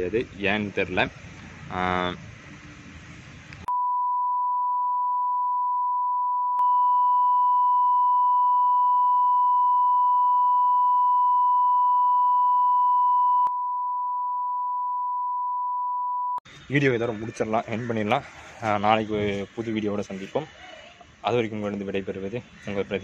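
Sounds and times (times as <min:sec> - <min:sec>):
electronic censor bleep: 0:03.7 - 0:16.4.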